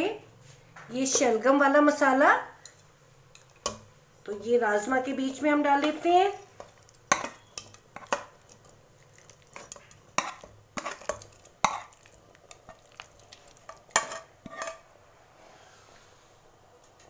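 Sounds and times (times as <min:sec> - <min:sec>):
metal ladle scraping a pan: 0:05.7 - 0:16.2.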